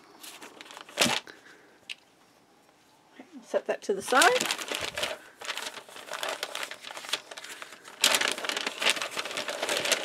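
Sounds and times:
paper bag crinkling: 0.1 - 1.4, 4.0 - 10.0.

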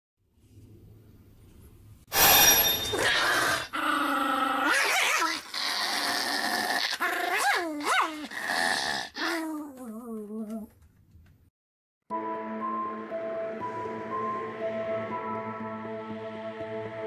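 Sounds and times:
puppy growling and barking: 3.0 - 10.7.

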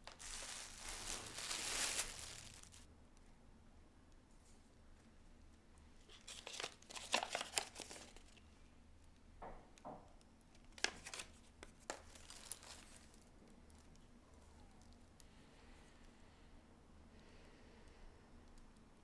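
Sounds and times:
paper being unfolded: 0.0 - 2.8, 6.1 - 8.4, 10.8 - 13.1
plastic bag crinkling: 0.0 - 2.9, 6.1 - 8.4, 10.8 - 13.9.

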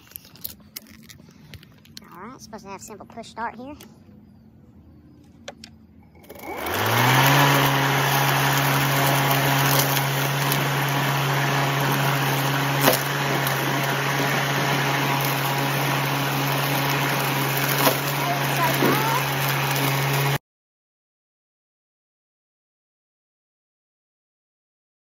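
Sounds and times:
electric lawn mower humming: 4.8 - 20.4.

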